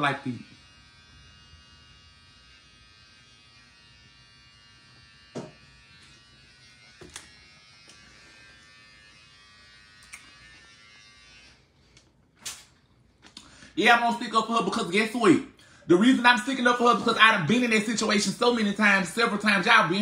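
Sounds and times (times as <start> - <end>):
high-pitched electrical buzz: 0.0 - 11.6.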